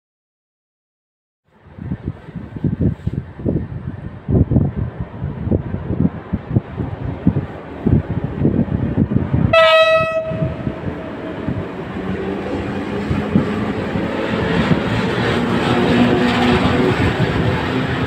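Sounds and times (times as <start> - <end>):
wind buffeting microphone: 1.5 - 18.0
train motors humming: 1.8 - 18.0
train horn blast: 9.5 - 10.9
train wheels rolling on rails: 10.6 - 18.0.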